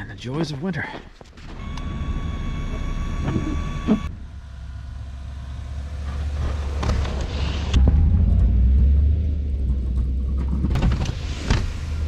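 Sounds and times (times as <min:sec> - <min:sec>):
truck engine rumbling: 0:01.4 - 0:12.0
high-pitched whine: 0:01.6 - 0:05.8.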